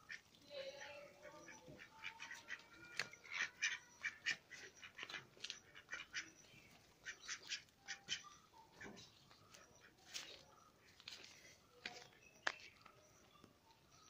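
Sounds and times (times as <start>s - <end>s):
ducks quacking: 0.0s - 11.0s.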